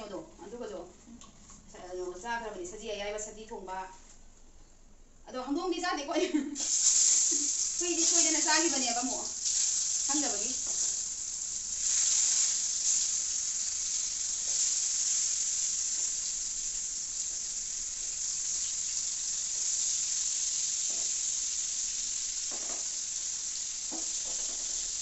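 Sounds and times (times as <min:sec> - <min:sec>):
food sizzling in hot oil: 0:06.6 - 0:25.0.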